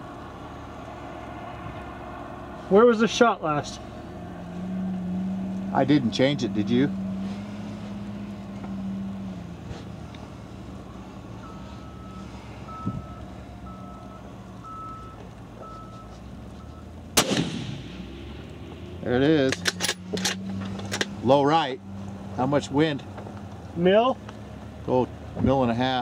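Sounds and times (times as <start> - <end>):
faint short beeps: 11.4 - 16.9
rifle shot with echo: 17.2 - 18.3.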